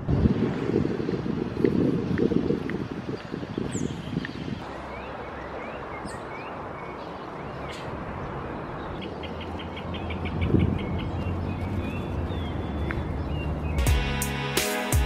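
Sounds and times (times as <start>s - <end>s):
city traffic hum: 0.0s - 15.0s
small birds chirping: 0.5s - 14.0s.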